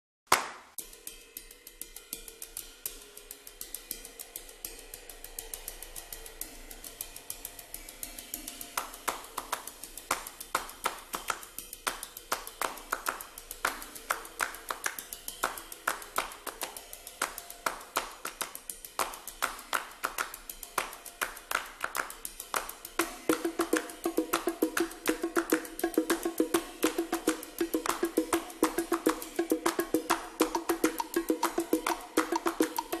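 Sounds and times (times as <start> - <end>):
hand claps: 0.3 - 0.8, 8.6 - 33.0.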